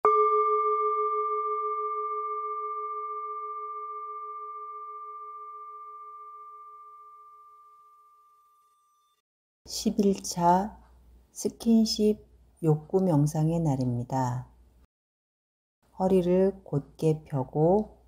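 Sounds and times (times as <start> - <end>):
singing bowl ringing: 0.0 - 9.2.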